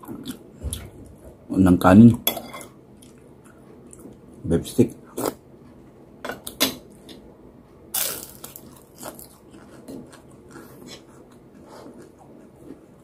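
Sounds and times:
chewing and mouth sounds: 8.0 - 13.0.

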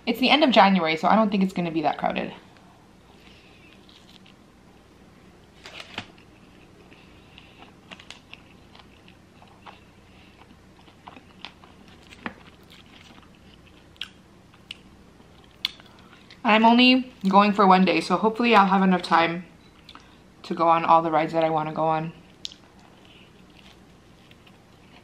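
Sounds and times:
person chewing pizza: 3.1 - 4.4, 5.8 - 16.4, 22.2 - 25.0.

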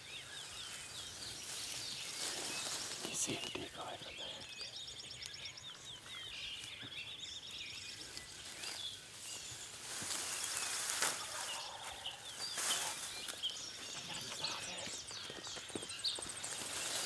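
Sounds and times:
small birds chirping: 0.0 - 17.0
footsteps through tall grass: 0.4 - 3.4, 7.8 - 17.0.

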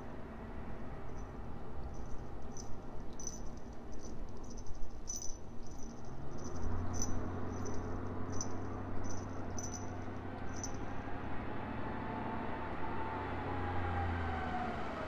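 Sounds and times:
high-pitched insect chirps: 2.0 - 9.9, 10.5 - 10.8.

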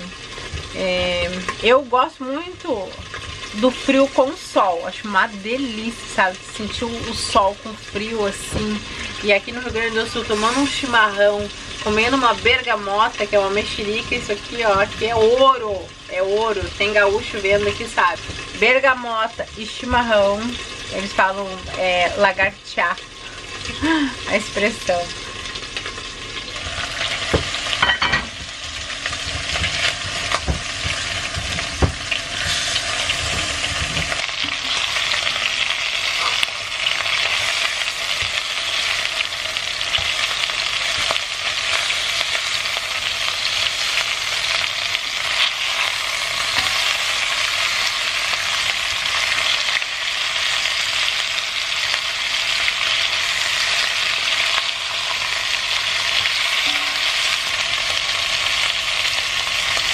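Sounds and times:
chicken sizzling in oil: 0.0 - 59.9
spatula stirring in pan: 28.4 - 35.4.

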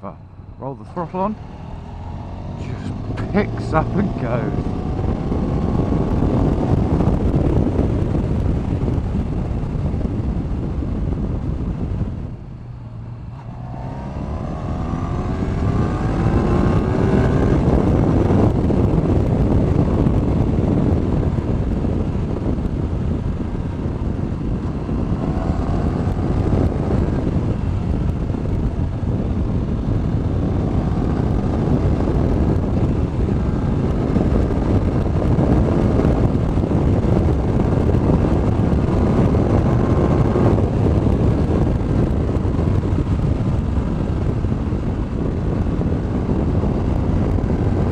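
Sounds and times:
motorcycle engine accelerating: 0.0 - 47.9
wind and road noise: 0.0 - 47.9.

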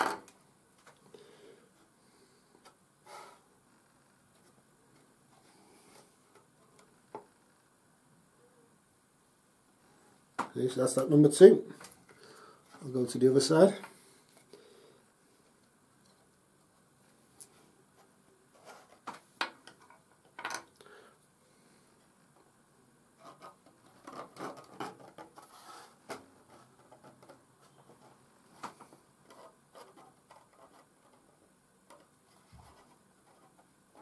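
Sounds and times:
fingers handling wooden parts: 23.2 - 34.0.

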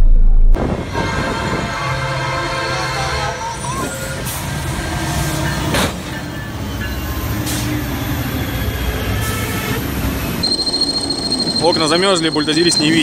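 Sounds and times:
freight locomotive rumbling past: 0.0 - 12.5.

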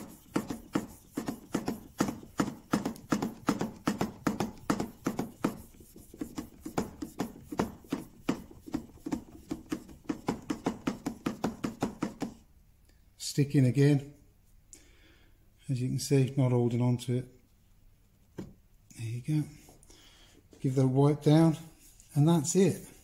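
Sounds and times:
chisel rubbing on wet whetstone: 0.0 - 10.4.

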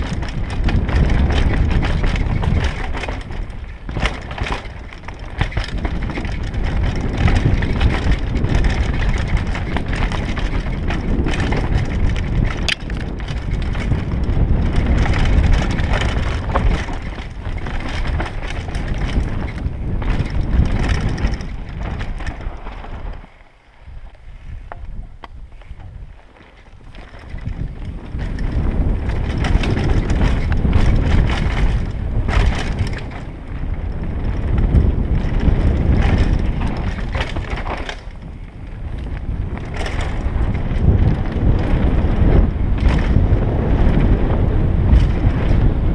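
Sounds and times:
bike rattling and knocking: 0.0 - 45.9
bike tyres rumbling over dirt: 0.0 - 45.9
wind rushing over microphone: 0.0 - 45.9.

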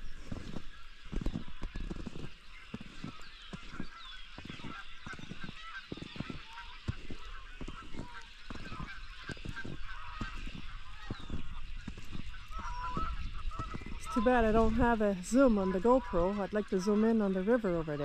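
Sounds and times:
birds chorus calling: 0.0 - 18.0
footsteps in snow: 0.0 - 18.0.

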